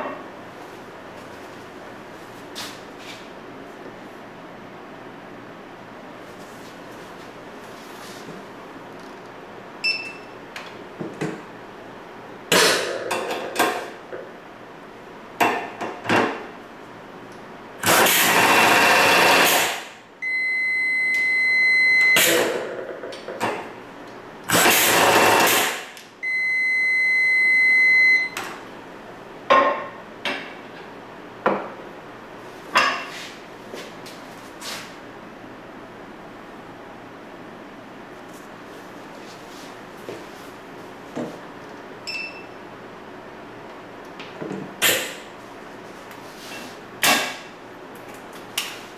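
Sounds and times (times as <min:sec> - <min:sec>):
pneumatic pulse tool running: 0:17.8 - 0:20.0, 0:22.2 - 0:22.6, 0:24.5 - 0:26.0
steady electronic beep: 0:20.2 - 0:22.3, 0:26.2 - 0:28.4, 0:42.1 - 0:42.6.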